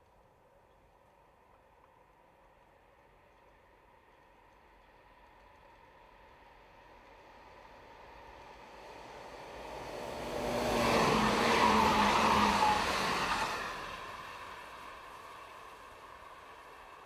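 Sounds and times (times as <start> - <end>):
electric train passing: 3.9 - 17.0
train whine: 4.6 - 17.0.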